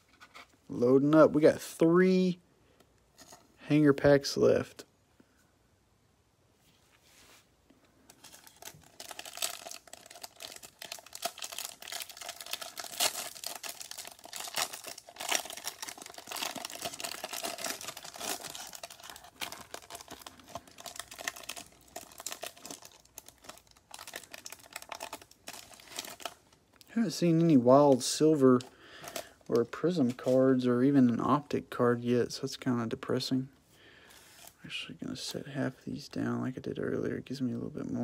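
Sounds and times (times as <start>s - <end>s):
plastic wrapper crinkling: 8.0s - 31.4s.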